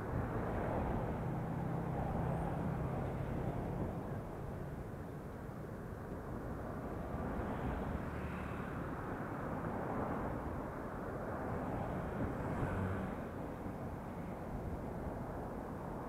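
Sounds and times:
road traffic passing: 0.0 - 16.0
wind rushing over microphone: 8.7 - 16.0.

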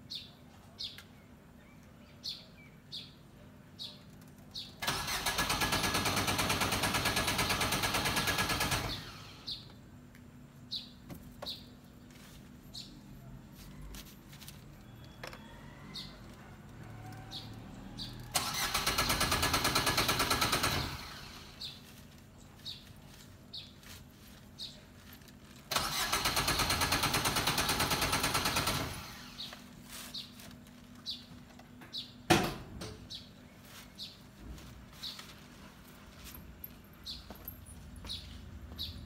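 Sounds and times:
car starter motor cranking: 4.8 - 9.4, 18.0 - 21.7, 25.7 - 29.5.

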